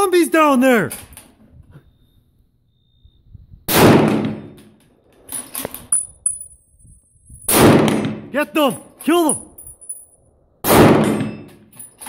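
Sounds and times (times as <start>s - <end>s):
rifle shot: 3.7s - 4.6s, 7.5s - 8.3s, 10.6s - 11.5s.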